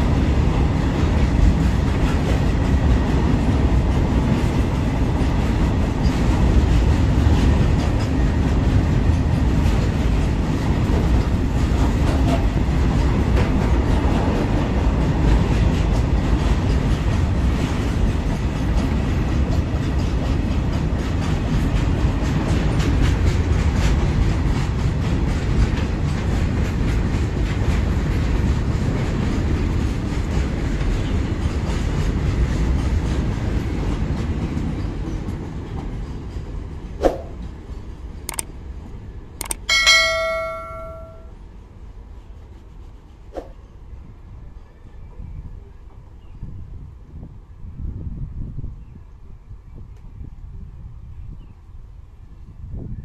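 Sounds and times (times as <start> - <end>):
clickety-clack over rail joints: 0.0 - 38.5
train wheels rumbling on rails: 0.0 - 48.4.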